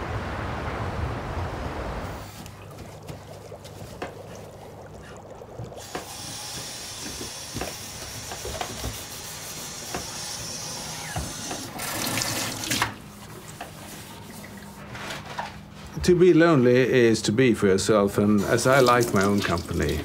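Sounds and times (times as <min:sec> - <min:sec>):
tap running into sink: 0:05.6 - 0:09.1.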